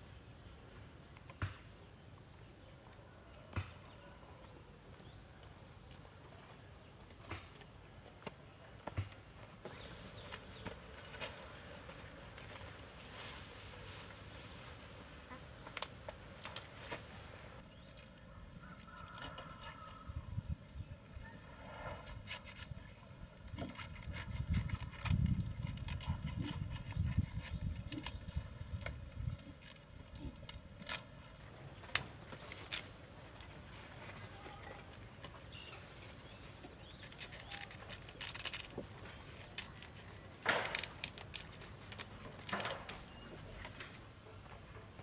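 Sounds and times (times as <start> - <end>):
cabbage leaves torn and rustled: 10.1 - 21.3, 22.0 - 35.6, 36.8 - 43.2
rabbits crunching cabbage: 14.9 - 43.7.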